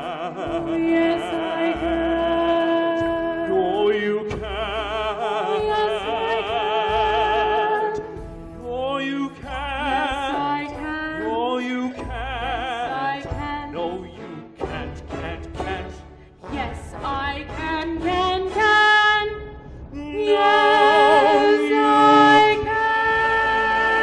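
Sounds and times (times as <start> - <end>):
woman and man singing duet: 0.0 - 8.1, 8.8 - 14.1, 20.0 - 24.0
low accompaniment: 8.2 - 24.0.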